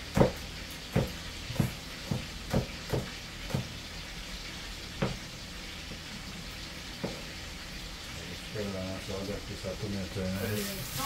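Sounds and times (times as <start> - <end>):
knife chopping on cutting board: 0.1 - 3.7
steady hiss: 4.2 - 11.0.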